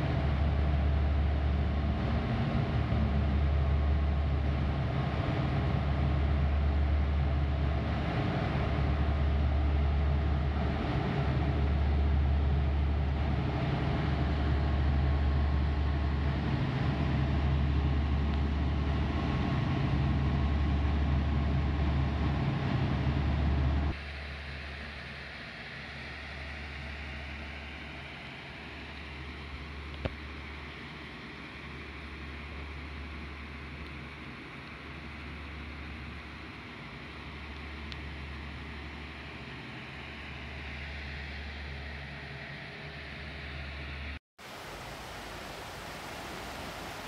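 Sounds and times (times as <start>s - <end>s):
rushing water: 44.4s - 47.0s.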